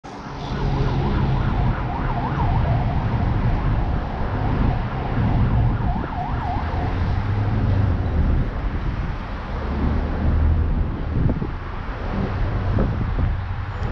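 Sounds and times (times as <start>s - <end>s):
emergency siren wailing: 0.0s - 9.0s
street traffic rumble: 0.0s - 13.9s.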